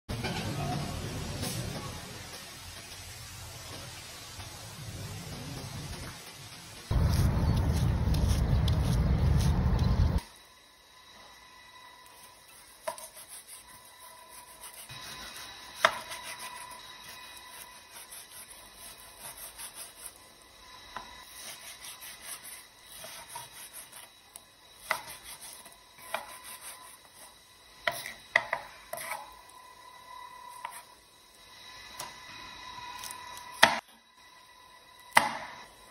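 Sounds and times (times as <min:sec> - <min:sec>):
knife slicing through meat: 0:12.6 - 0:20.2.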